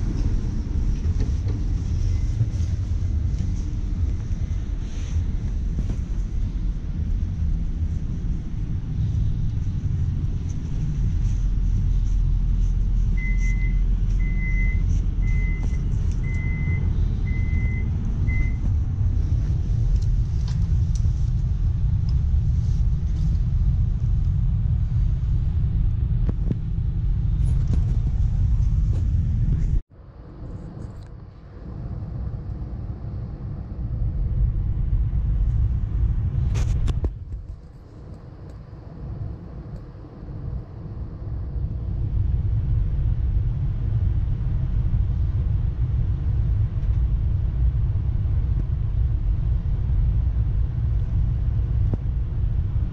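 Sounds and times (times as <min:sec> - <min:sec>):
train rumbling inside carriage: 0:00.0 - 0:52.9
short electronic beeps: 0:13.2 - 0:18.6.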